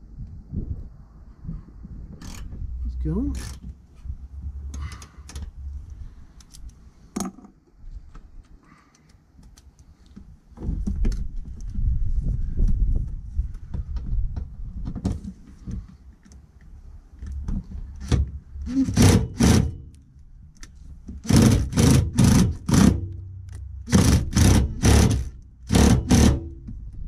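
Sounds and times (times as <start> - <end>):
impact driver bursts: 18.7 - 19.9, 21.2 - 23.1, 23.9 - 26.6.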